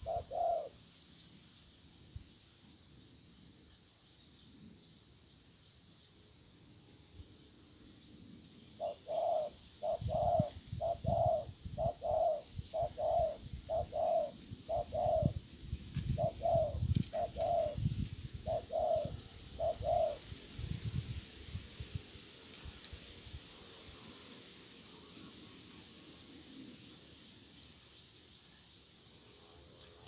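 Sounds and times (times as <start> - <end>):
dove cooing: 0.0 - 0.8, 8.8 - 15.4, 16.1 - 20.2.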